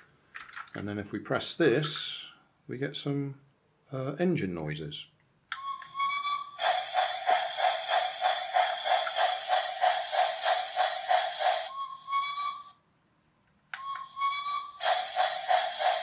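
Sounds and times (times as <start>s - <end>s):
electronic train whistle: 5.6s - 7.3s, 11.5s - 12.8s, 13.8s - 16.0s
electronic steam engine chuffing: 5.6s - 12.7s, 13.8s - 16.0s
click: 13.5s - 14.1s.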